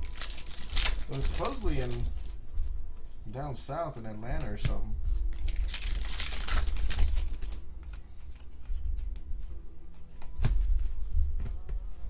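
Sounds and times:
cards rustling: 0.0 - 2.4, 5.4 - 9.3
foil wrapper crinkling: 0.0 - 2.4, 5.3 - 8.4.

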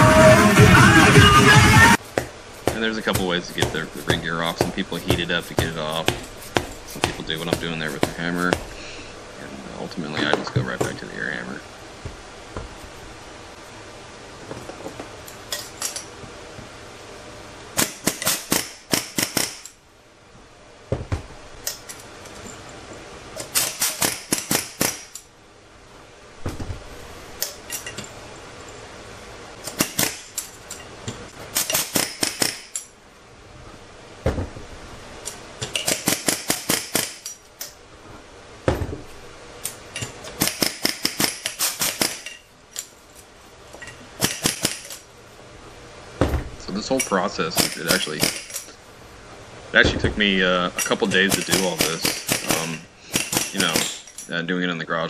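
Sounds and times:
air hammer bursts: 23.4 - 25.1, 40.2 - 42.3, 51.2 - 54.1.

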